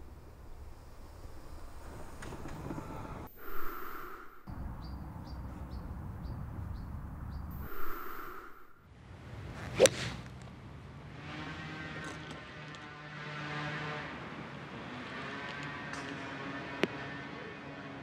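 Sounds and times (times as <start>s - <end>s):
outdoor ambience: 0.0s - 18.0s
golf club striking ball: 9.8s - 10.2s.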